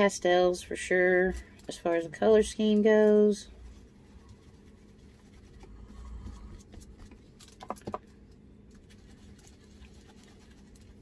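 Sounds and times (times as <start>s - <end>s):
paintbrush scratchy dabbing: 2.3s - 6.6s, 8.8s - 11.0s.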